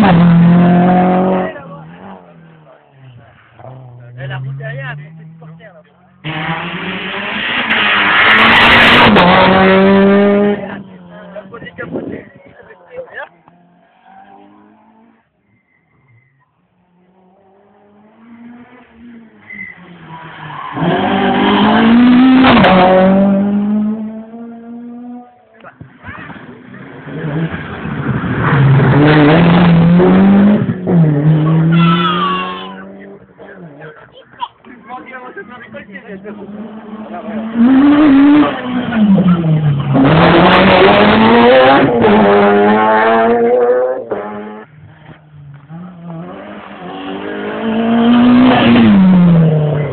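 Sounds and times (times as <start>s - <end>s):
rally car engine revving past: 0.0s - 2.3s, 6.2s - 11.1s, 16.8s - 25.4s, 26.5s - 33.8s, 36.3s - 44.7s, 45.6s - 49.9s.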